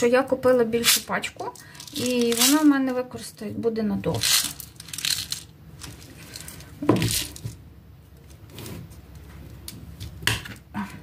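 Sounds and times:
plastic and glass jars clinking: 1.4s - 3.0s, 4.1s - 7.6s.

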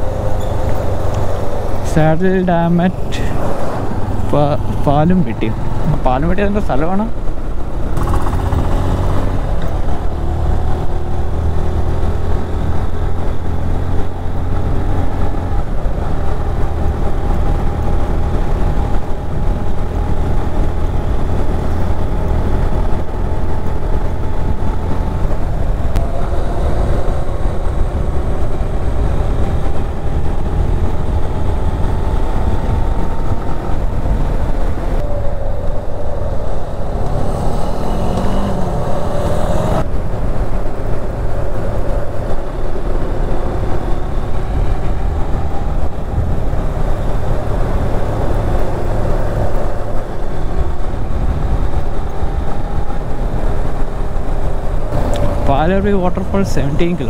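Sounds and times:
wind rumble on microphone: 0.0s - 57.0s
motorcycle engine running: 7.7s - 10.2s.

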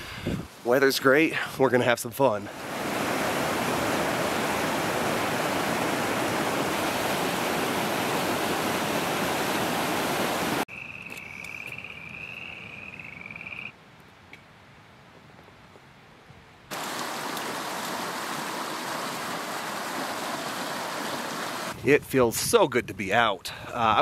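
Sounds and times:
creek rushing over logs: 0.0s - 10.6s, 16.7s - 21.8s.

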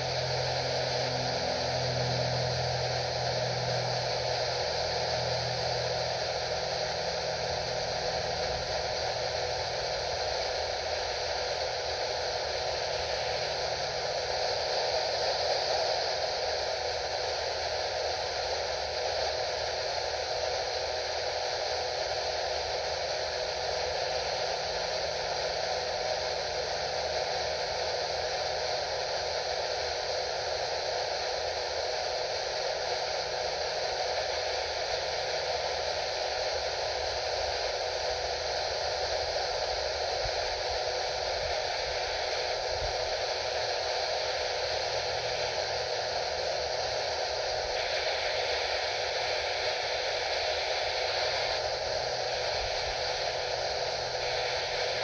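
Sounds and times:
radio static hiss: 0.0s - 55.0s.

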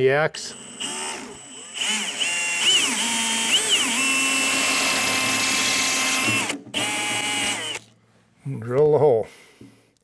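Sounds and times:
cordless drill motor whine: 0.5s - 7.9s.

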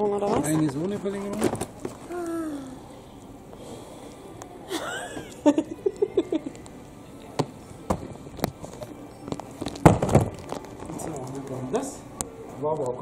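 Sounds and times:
woman laughing: 4.7s - 6.6s.

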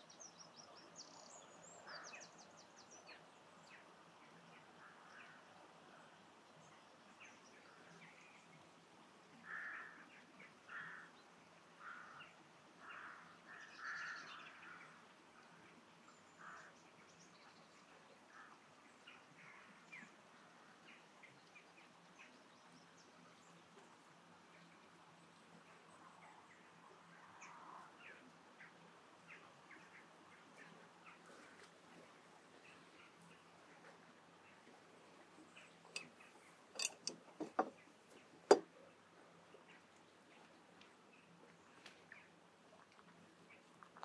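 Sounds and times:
crow cawing: 9.5s - 10.0s, 10.7s - 11.1s, 11.8s - 12.2s.

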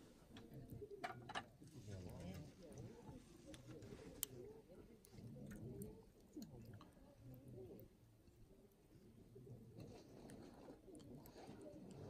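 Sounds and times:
wood fire crackling: 0.0s - 12.0s.

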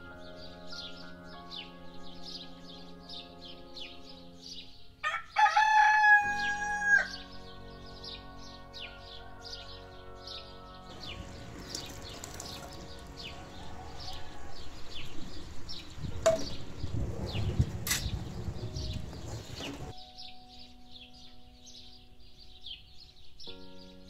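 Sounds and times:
soft instrumental music: 0.0s - 24.0s
small birds chirping: 6.4s - 24.0s
liquid poured into a pot: 11.2s - 13.1s.

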